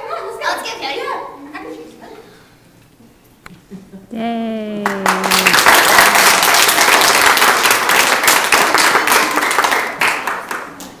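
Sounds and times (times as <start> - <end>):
children applauding: 4.8 - 11.0.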